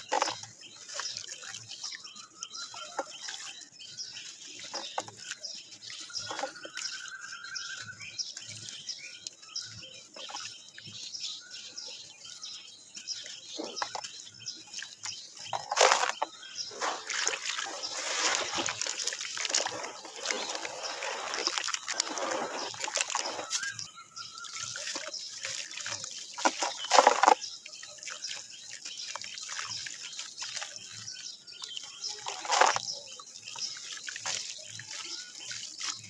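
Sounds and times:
dirt crumbling into water: 0:00.0 - 0:01.6, 0:13.4 - 0:30.9, 0:32.2 - 0:36.0
hands sloshing through muddy water: 0:00.0 - 0:36.0
water splash: 0:14.8 - 0:28.5.

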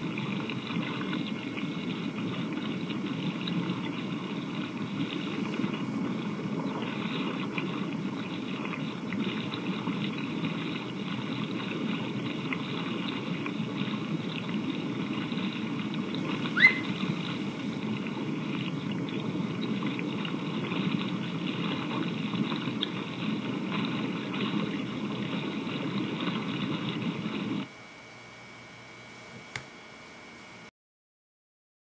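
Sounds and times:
rising chirp: 0:16.6 - 0:17.0.

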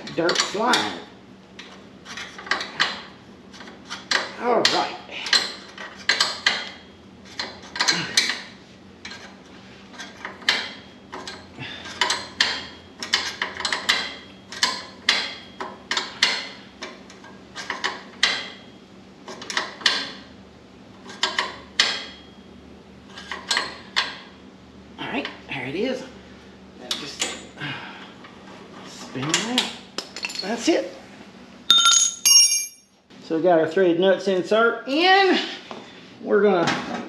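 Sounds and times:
wrench metal clinks: 0:31.7 - 0:32.9.

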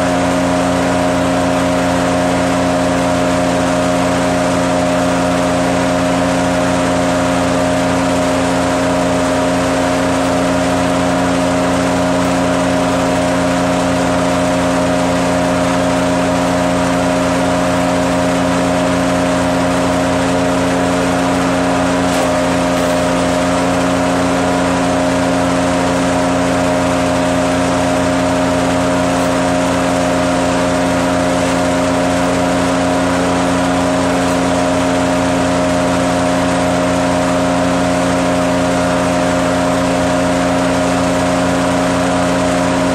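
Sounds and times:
wood chipper humming: 0:00.0 - 0:42.9.

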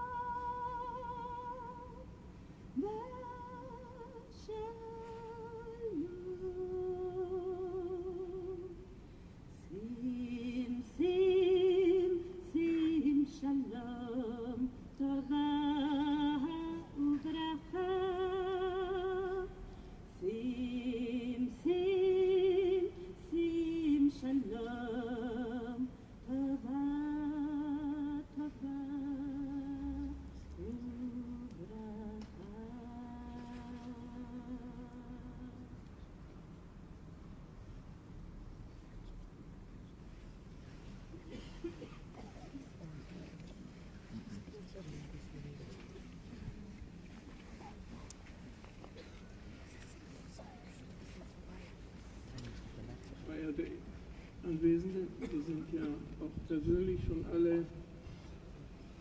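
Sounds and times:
woman singing unaccompanied: 0:00.0 - 0:02.2, 0:02.8 - 0:08.9, 0:09.5 - 0:35.8.

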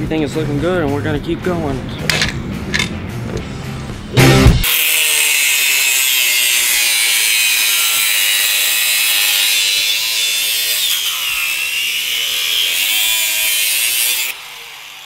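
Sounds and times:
angle grinder cutting metal: 0:04.6 - 0:15.0.

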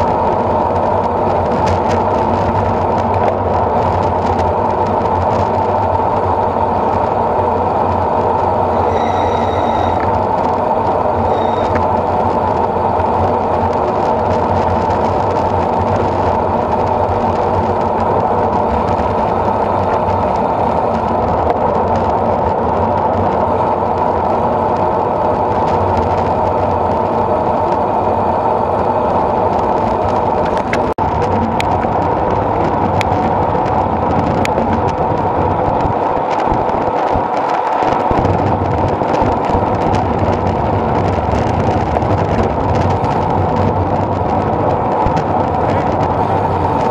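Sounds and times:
wind and road noise: 0:00.0 - 0:46.9.

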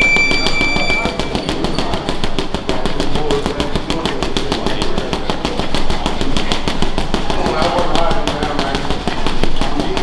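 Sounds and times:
high electronic beep: 0:00.0 - 0:01.5.

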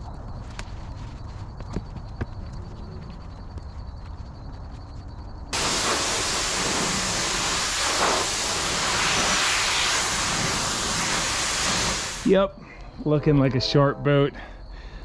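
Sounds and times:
pressure washer water jet hissing: 0:05.6 - 0:12.3.

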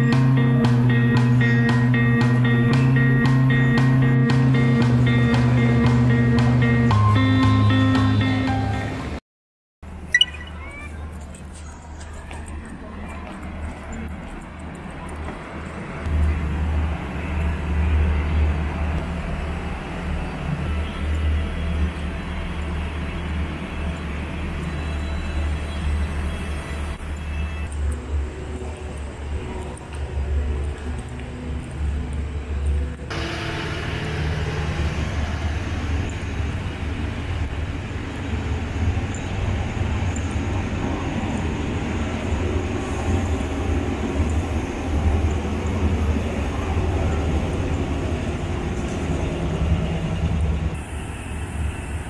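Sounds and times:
idling diesel trains rumble: 0:00.0 - 0:09.2, 0:33.1 - 0:52.0
station noise: 0:00.0 - 0:09.2, 0:15.8 - 0:52.0.

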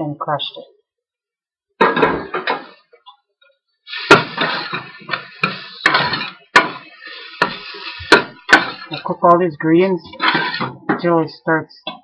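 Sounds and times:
food frying in oil: 0:03.9 - 0:09.0
metal spoon scraping pan: 0:03.9 - 0:11.0.

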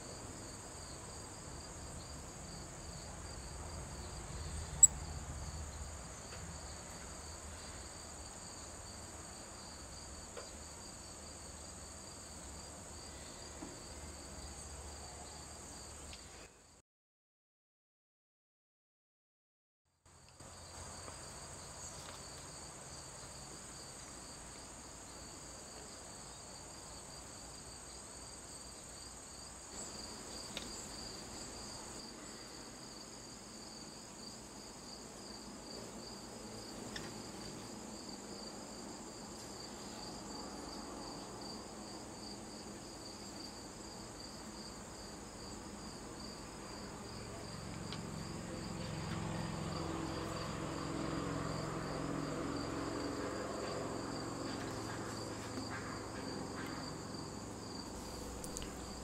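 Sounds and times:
crickets trilling: 0:00.1 - 0:16.3, 0:20.4 - 0:59.0
faint ticks: 0:58.3 - 0:59.0.

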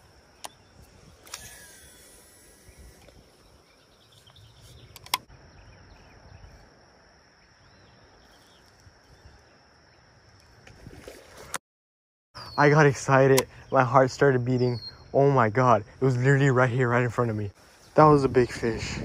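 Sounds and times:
rod and reel handling rumble: 0:00.4 - 0:03.6
reel spool whirring: 0:01.1 - 0:03.3.

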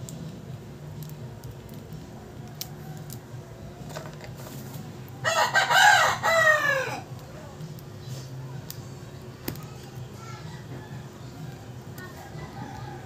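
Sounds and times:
rooster crowing: 0:05.2 - 0:07.1, 0:10.5 - 0:13.0.

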